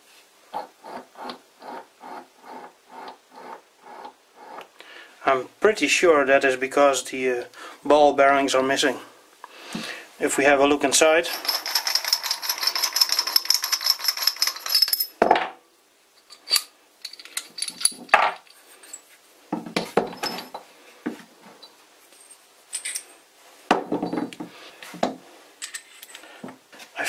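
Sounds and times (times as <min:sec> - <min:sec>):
metal parts clinking on wood: 0:11.3 - 0:15.2, 0:16.2 - 0:19.1, 0:20.0 - 0:20.6, 0:21.6 - 0:23.2.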